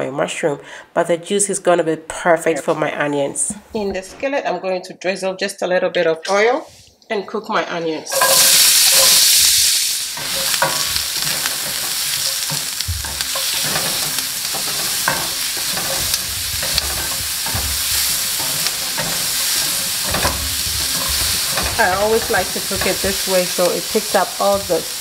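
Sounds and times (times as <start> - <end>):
onions sizzling in oil: 8.1 - 25.0
spatula scraping a pan: 8.1 - 25.0.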